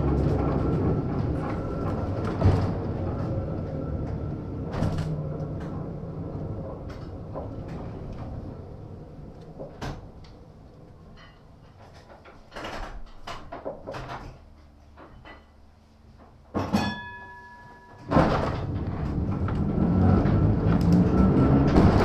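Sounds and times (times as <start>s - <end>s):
tram motor hum: 0.0s - 12.3s, 18.1s - 22.0s
tram wheels rumbling: 0.0s - 16.4s, 18.0s - 22.0s
light knocks and clatter: 11.1s - 16.9s
tram bell ringing: 16.7s - 18.2s.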